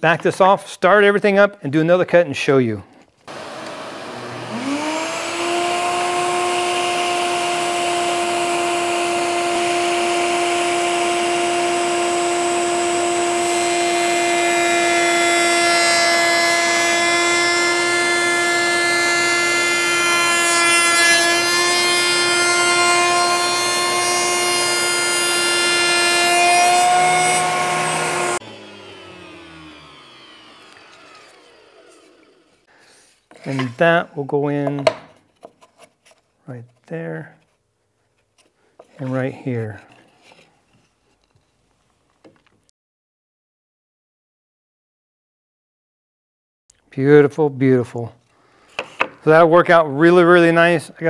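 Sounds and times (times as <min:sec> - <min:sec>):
router bit cutting wood: 0:03.3 - 0:32.7
router whine: 0:03.3 - 0:32.7.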